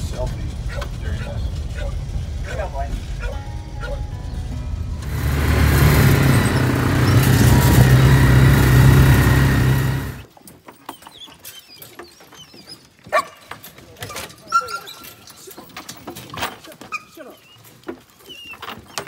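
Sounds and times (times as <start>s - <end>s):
road and wind noise: 0.0s - 10.3s
vehicle engine droning: 0.0s - 10.3s.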